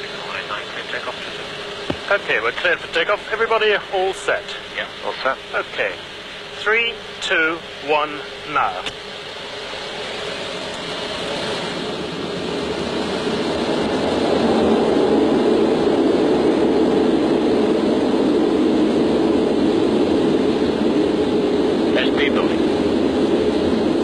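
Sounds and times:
jet engines roaring: 0.0s - 24.0s
runway rumble: 0.0s - 24.0s.

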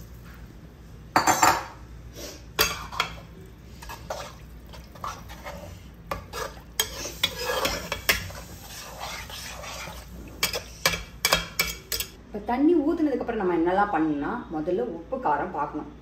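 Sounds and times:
metal spoon scraping metal pot: 3.8s - 12.2s.

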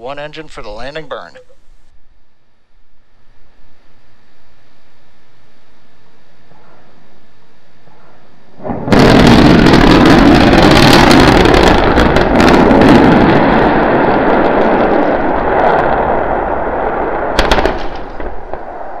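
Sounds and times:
deep rumble of rocket explosion: 8.6s - 19.0s
sharp crack: 17.0s - 19.0s.

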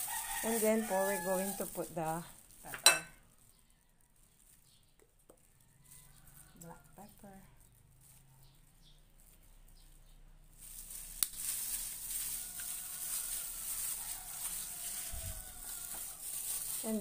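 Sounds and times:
wet squishing of marinade: 0.0s - 1.8s, 9.1s - 17.0s
plastic glove crinkling: 0.0s - 17.0s.

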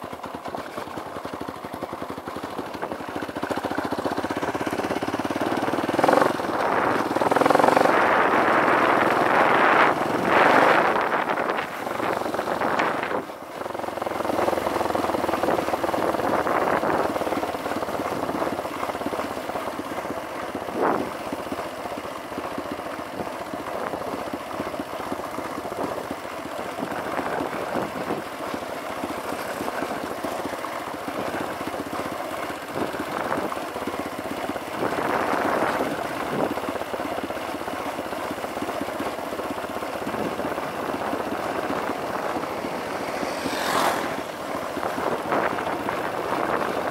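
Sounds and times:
dirt bike engine running: 0.0s - 46.9s
wind rushing over microphone: 5.9s - 13.3s, 40.0s - 46.9s.

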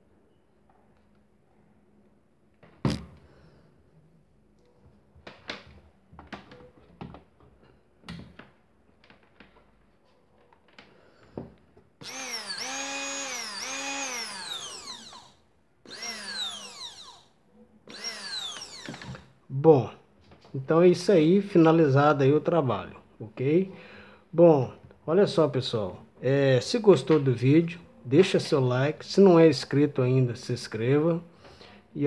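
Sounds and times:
hand blender motor whining: 12.0s - 17.3s, 17.9s - 19.3s.

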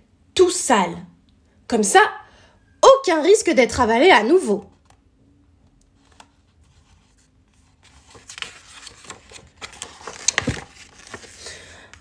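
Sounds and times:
paper page rustling: 5.9s - 12.0s.

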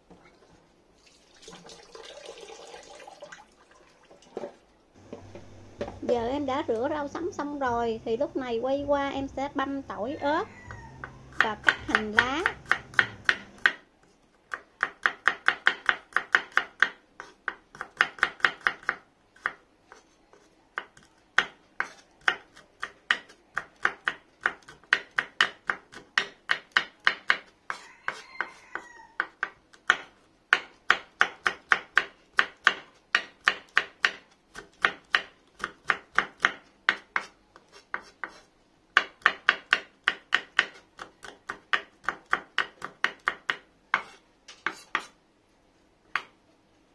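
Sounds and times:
knife chopping on wooden board: 11.0s - 13.8s, 14.5s - 28.6s, 29.2s - 45.2s.

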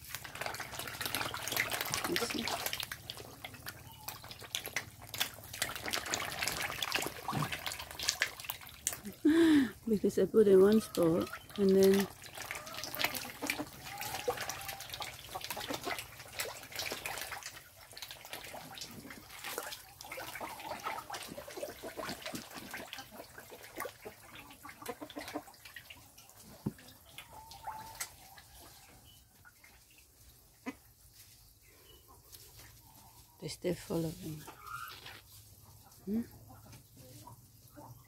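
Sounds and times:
fish splashing at water surface: 0.0s - 9.7s, 11.0s - 28.7s.

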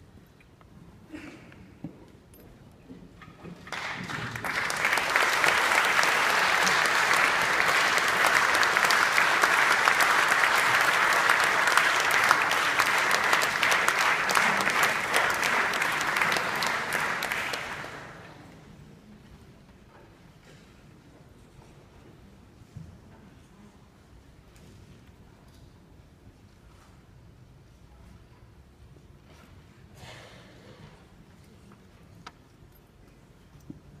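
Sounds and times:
audience applauding: 3.6s - 18.4s.

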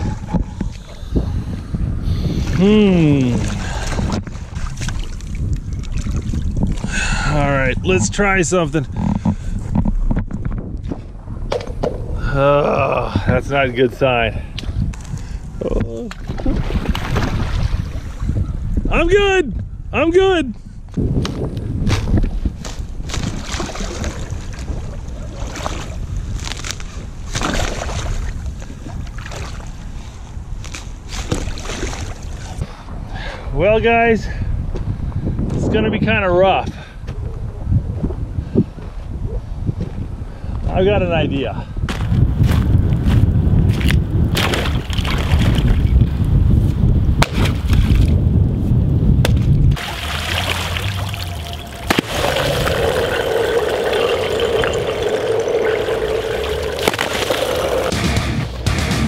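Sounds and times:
water splashing and sloshing: 2.4s - 7.0s, 16.0s - 18.4s, 21.9s - 32.6s, 43.7s - 46.0s, 47.2s - 48.2s, 49.3s - 57.9s
water splashing: 16.1s - 18.2s, 23.1s - 26.1s, 49.8s - 57.9s
ice cracking: 49.8s - 57.9s.

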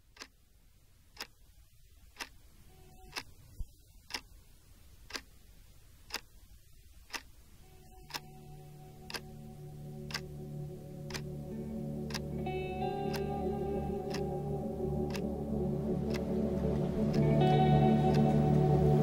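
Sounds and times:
clock ticking: 0.0s - 0.5s, 1.1s - 16.3s, 17.1s - 19.0s
low steady drone: 7.6s - 19.0s.

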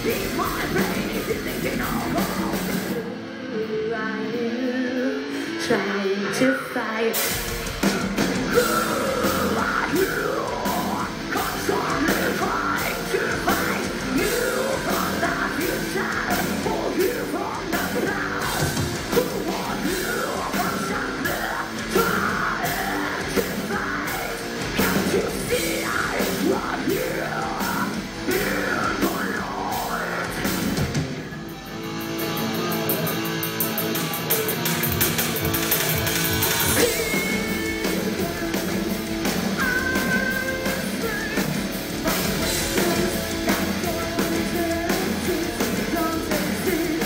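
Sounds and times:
metal band playing live: 0.0s - 47.0s
woman singing and yelling: 3.4s - 7.3s, 39.5s - 47.0s.

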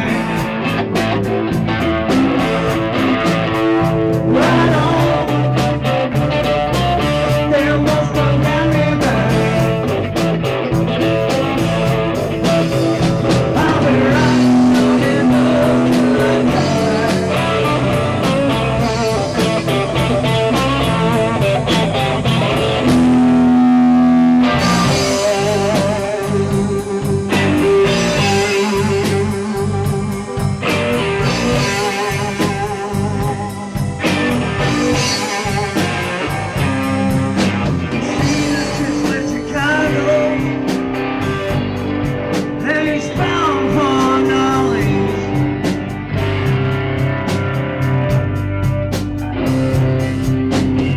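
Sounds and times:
live rock-blues band: 0.0s - 50.9s.

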